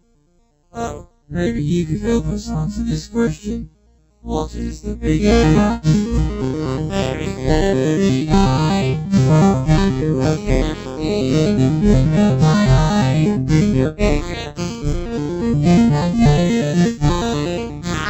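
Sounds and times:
electronic synthesizer music: 4.3s - 18.0s.

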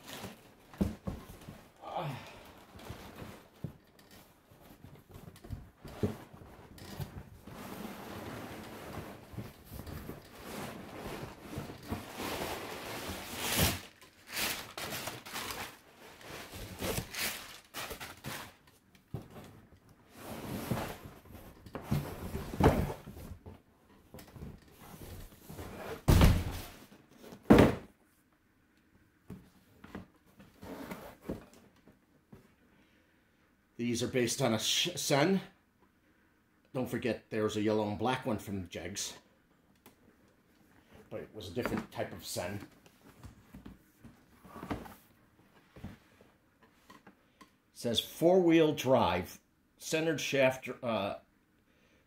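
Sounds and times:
rustling: 2.4s - 23.4s.

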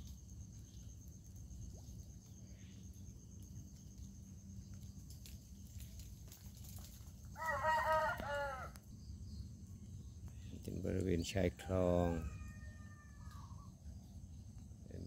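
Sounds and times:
faint high insect trill: 0.0s - 15.0s
rooster crowing: 7.4s - 8.8s, 11.6s - 13.7s
low steady rumble: 8.7s - 15.0s.

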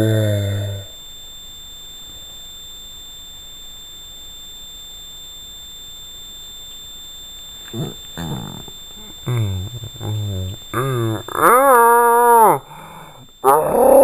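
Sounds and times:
low drawn-out growl: 0.0s - 0.9s, 7.7s - 14.0s
high electronic whine: 5.5s - 14.0s
rising voice-like sound: 7.7s - 14.0s.

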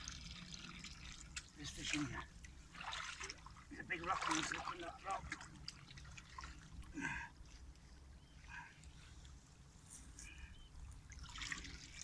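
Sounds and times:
water stirring: 0.0s - 7.0s.

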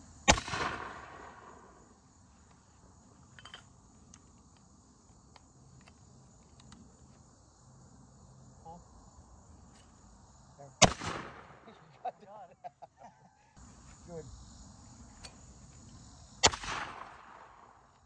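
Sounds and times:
crickets chirping: 0.0s - 18.0s
shotgun blast with echo: 0.3s - 1.5s, 10.8s - 11.6s, 16.4s - 17.4s.

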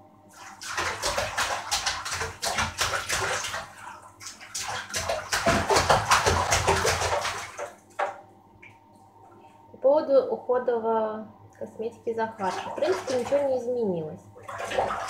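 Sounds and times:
water splashing in bathtub: 0.3s - 8.8s, 12.2s - 15.0s.

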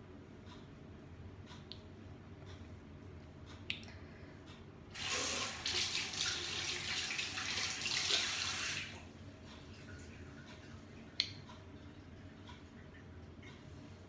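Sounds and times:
tap water running into sink: 5.0s - 9.0s.

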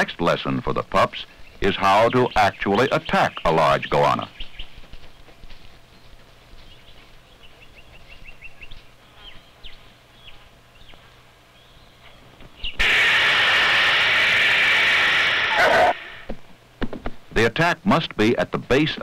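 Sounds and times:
small birds chirping: 1.0s - 12.8s
lizard hissing: 12.8s - 16.3s.

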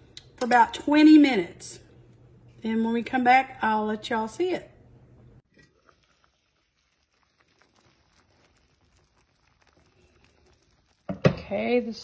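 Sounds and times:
soup simmering pops: 5.4s - 11.6s.

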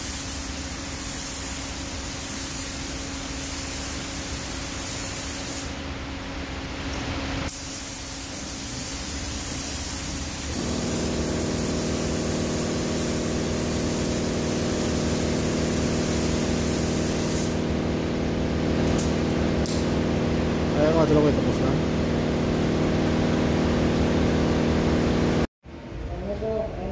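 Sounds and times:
paint spray gun hissing: 0.0s - 5.8s, 7.5s - 25.5s
mechanical hum: 0.0s - 26.9s.

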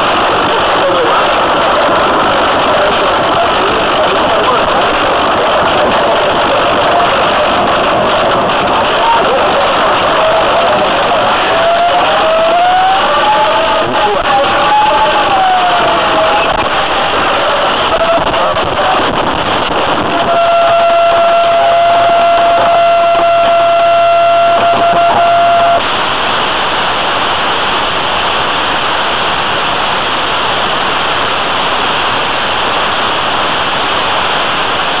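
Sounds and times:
steady high tone: 0.0s - 25.9s
static hiss: 0.0s - 35.0s.

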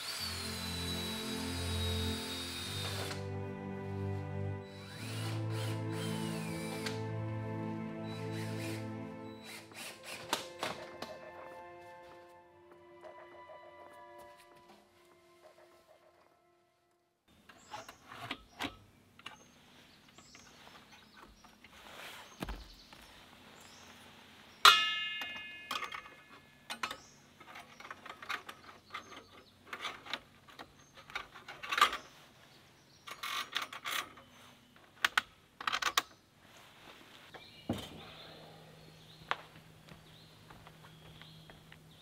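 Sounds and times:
loud ringing metal clang: 24.7s - 26.3s
metal pipe parts clicking and clanking: 24.7s - 32.0s.

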